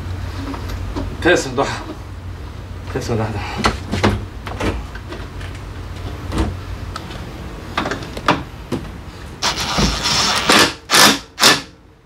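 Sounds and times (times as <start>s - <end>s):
scraping or rustling: 9.4s - 10.5s.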